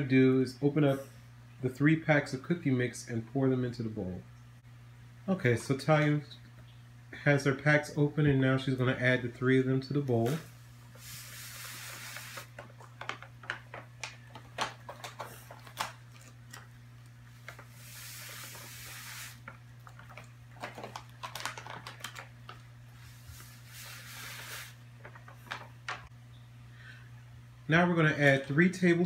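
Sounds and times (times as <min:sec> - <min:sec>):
low steady hum: 0:00.0 - 0:29.0
pouches crinkling and tapping: 0:12.3 - 0:17.7, 0:19.4 - 0:22.7, 0:25.0 - 0:26.1.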